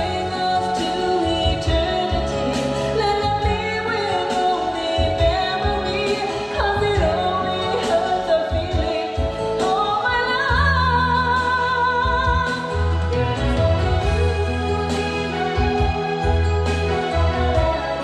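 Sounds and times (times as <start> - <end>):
backing music with bass: 0.0 - 18.0
person singing with vibrato: 0.0 - 18.0.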